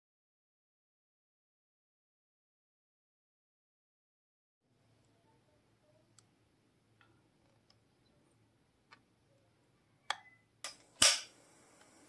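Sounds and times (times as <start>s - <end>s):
gas hiss: 10.7s - 12.0s
lighter clicks: 10.7s - 12.0s.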